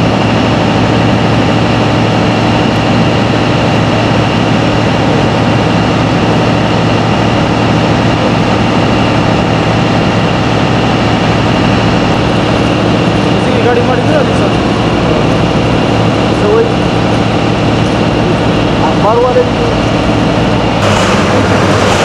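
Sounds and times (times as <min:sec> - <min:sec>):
engine droning: 0:00.0 - 0:22.0.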